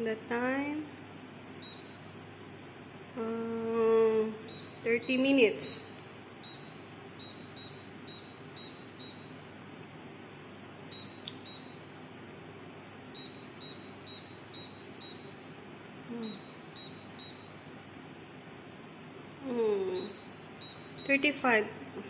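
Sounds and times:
short high oven beeps: 1.6 - 2.2, 4.5 - 9.5, 10.9 - 11.9, 13.1 - 15.5, 16.1 - 17.7, 19.9 - 21.4.

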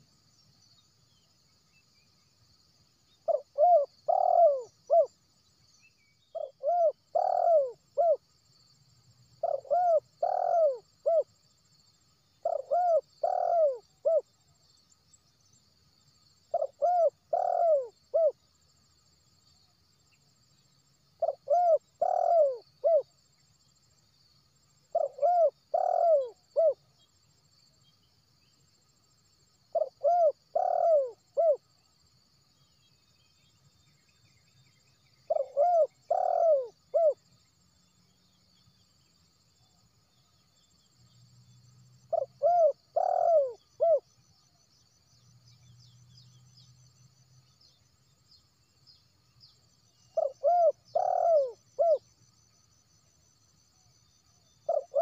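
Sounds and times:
dove cooing: 3.2 - 5.1, 6.4 - 8.2, 9.4 - 11.3, 12.4 - 14.2, 16.5 - 18.4, 21.2 - 23.1, 24.9 - 26.8, 29.7 - 31.6, 35.3 - 37.2, 42.1 - 44.0, 50.2 - 52.0, 54.6 - 55.0.

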